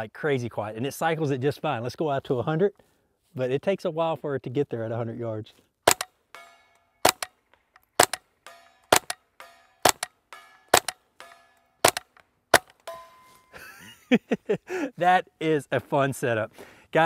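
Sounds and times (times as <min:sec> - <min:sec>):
suppressed rifle shots: 0:05.9 - 0:06.1, 0:07.0 - 0:12.9
steel targets ringing: 0:06.3 - 0:07.2, 0:08.4 - 0:13.6.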